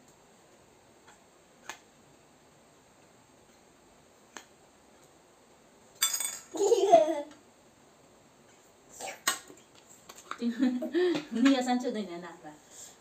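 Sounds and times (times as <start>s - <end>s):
boy laughing: 6.5s - 7.4s.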